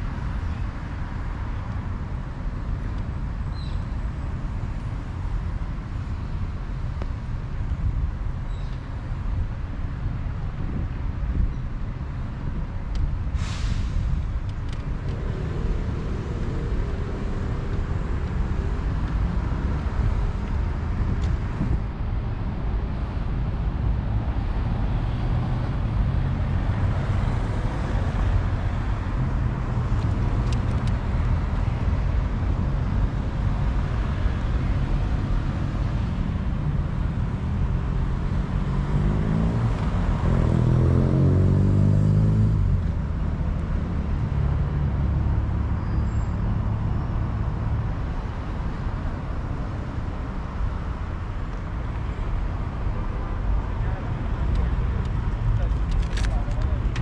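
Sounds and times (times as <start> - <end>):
city road traffic rumbling: 0.0 - 57.0
vehicle accelerating past: 37.7 - 42.8.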